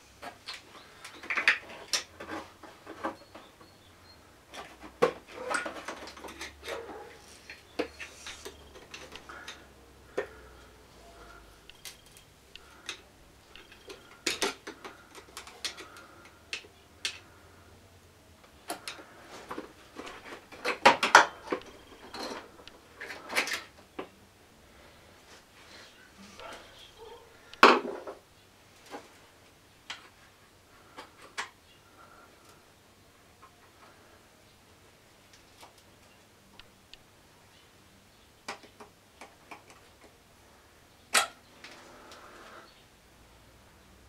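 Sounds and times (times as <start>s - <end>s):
metal and plastic parts clinking: 4.5s - 10.4s, 11.3s - 17.3s, 18.7s - 23.8s.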